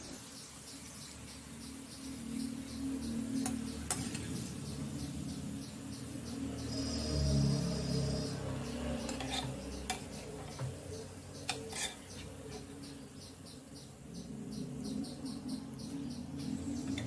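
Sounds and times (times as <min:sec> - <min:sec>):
oil sizzling: 0:00.0 - 0:05.0, 0:08.5 - 0:12.7
metal skimmer clinking and scraping: 0:09.0 - 0:10.7, 0:11.5 - 0:12.2.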